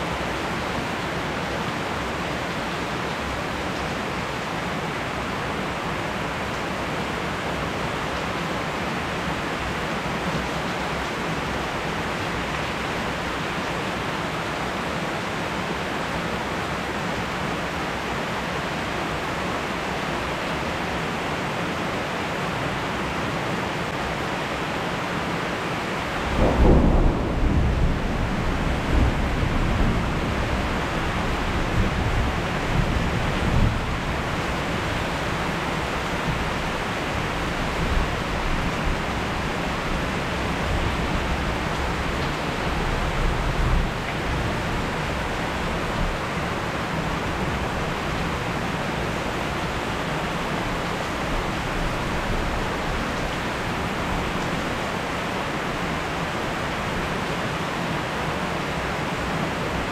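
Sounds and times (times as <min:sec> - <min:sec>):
heavy rain: 0:00.0 - 0:59.9
thunder clap and rumble: 0:26.2 - 0:35.0.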